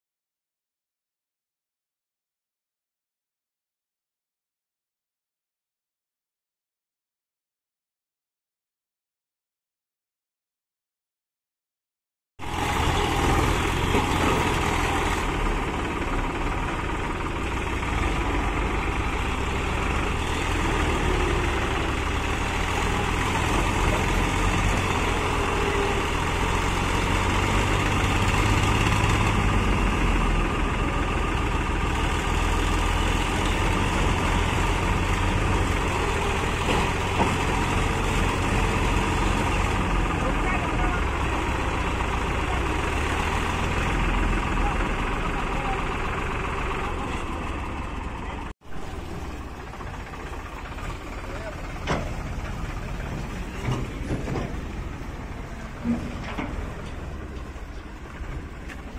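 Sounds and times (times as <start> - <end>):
diesel tractor engines running: 12.4 - 58.9.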